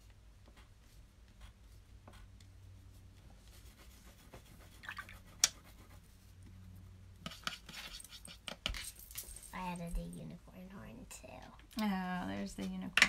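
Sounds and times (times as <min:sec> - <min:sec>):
low steady hum: 0:00.0 - 0:13.0
pencil scratching on paper: 0:00.4 - 0:08.8.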